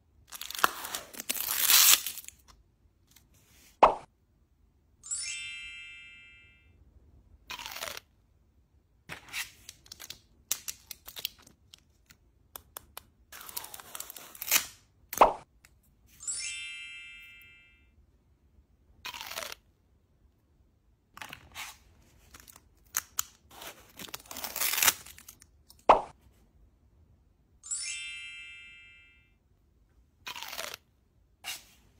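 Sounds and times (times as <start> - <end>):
plastic packaging crinkling: 0.3 - 2.5
plastic tearing: 0.3 - 2.5, 22.3 - 25.5
chime sound effect: 5.0 - 6.8, 16.2 - 18.0, 27.6 - 29.4.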